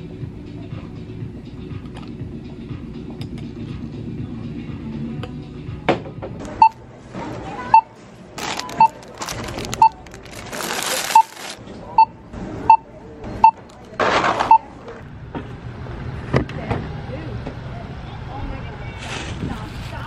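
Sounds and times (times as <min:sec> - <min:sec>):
barcode scanner beeping: 0:07.7 - 0:12.1
items rustling: 0:08.4 - 0:11.6.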